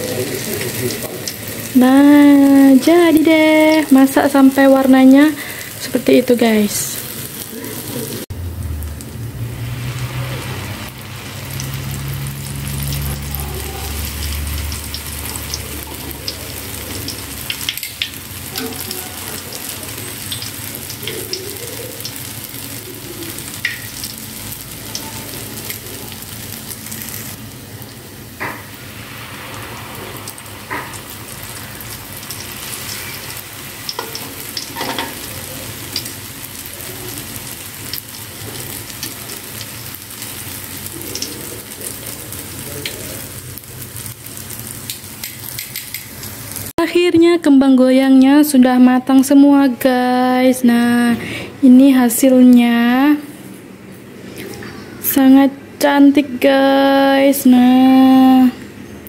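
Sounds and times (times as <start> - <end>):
batter sizzling in hot oil: 0.0 - 46.8.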